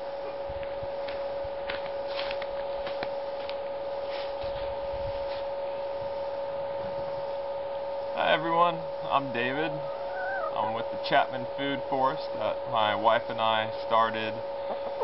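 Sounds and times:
steady mid-pitched hum: 0.0s - 15.0s
footsteps on grass: 1.0s - 5.5s.

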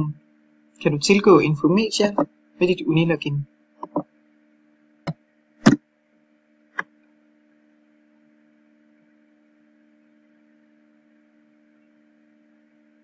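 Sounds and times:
faint electrical hum: 0.0s - 13.0s
sharp computer clicks: 3.8s - 4.0s.

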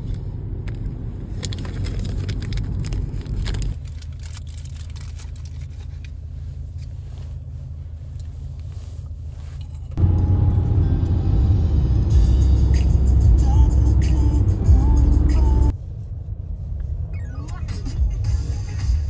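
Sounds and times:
car road noise rumble: 0.0s - 19.0s.

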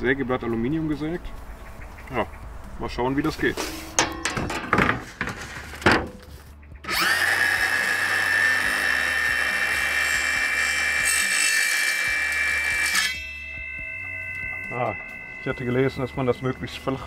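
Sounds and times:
clicks and knocks: 3.6s - 6.2s
circular saw whining: 6.8s - 17.0s.

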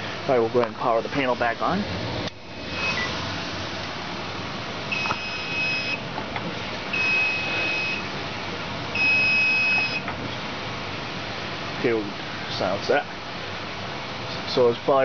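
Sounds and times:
high-pitched alarm panel beeps: 2.8s - 3.1s, 4.9s - 6.0s, 7.0s - 8.1s, 9.0s - 10.0s.

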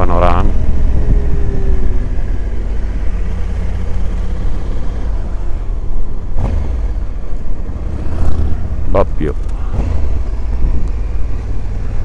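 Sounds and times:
wind rumble on microphone: 0.0s - 7.2s, 10.0s - 11.5s
motorcycle engine running: 0.0s - 12.0s.

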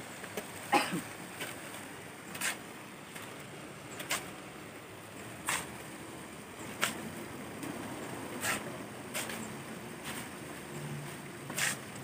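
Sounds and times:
shovel scraping sand: 2.3s - 2.7s, 4.0s - 4.4s, 5.4s - 5.8s, 6.8s - 7.1s, 8.4s - 10.3s, 11.5s - 12.0s.

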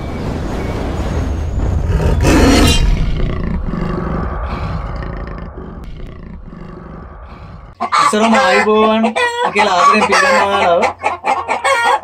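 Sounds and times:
deep rumble: 0.0s - 7.8s
large creature roaring: 1.9s - 7.8s.

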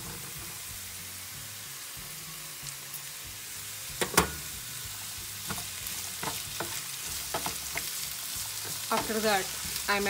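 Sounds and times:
vegetables sizzling in oil: 0.0s - 10.0s
spatula scraping a pan: 4.9s - 9.9s.

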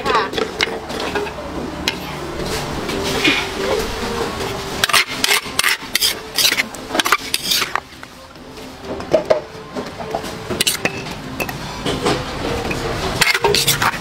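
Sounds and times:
metal spoon scraping a mortar: 4.8s - 7.8s, 10.5s - 11.0s, 13.1s - 14.0s.

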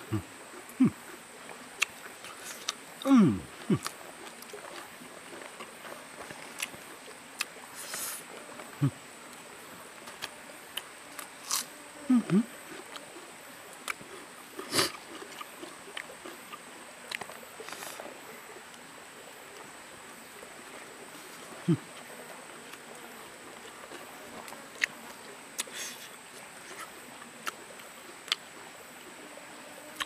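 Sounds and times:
wet chewing mouth sounds: 1.8s - 9.0s, 10.1s - 18.8s, 23.6s - 28.5s.

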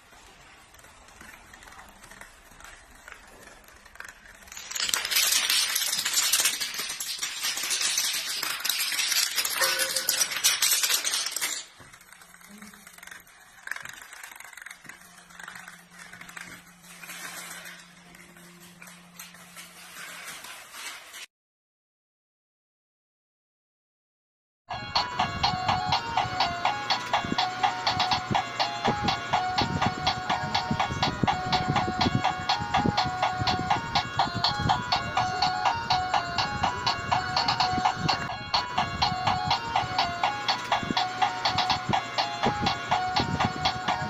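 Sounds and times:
dominoes toppling clatter: 0.2s - 21.3s.

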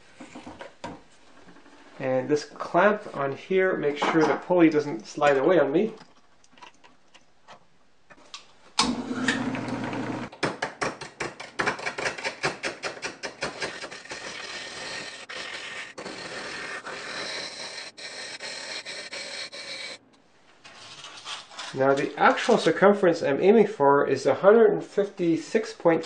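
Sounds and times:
chisel scraping spinning wood: 13.3s - 20.0s.

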